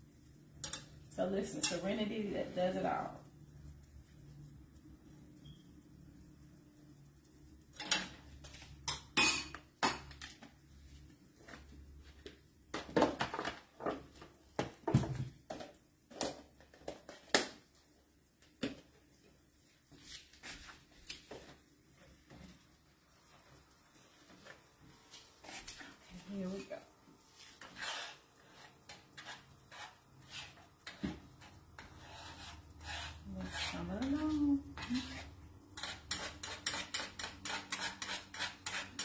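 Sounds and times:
pans and utensils clinking: 0.6 - 1.9, 7.7 - 10.4, 35.8 - 39.0.

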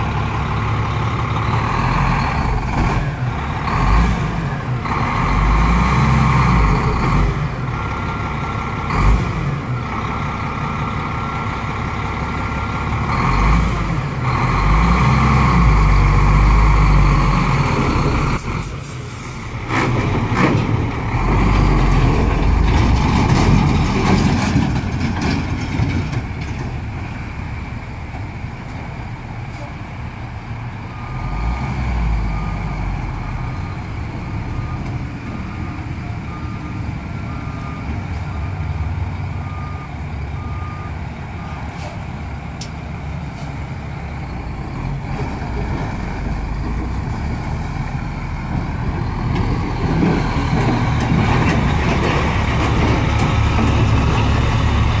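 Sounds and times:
truck diesel engine running: 0.0 - 31.6, 32.2 - 55.0
reversing alarm beeping: 30.9 - 41.8.

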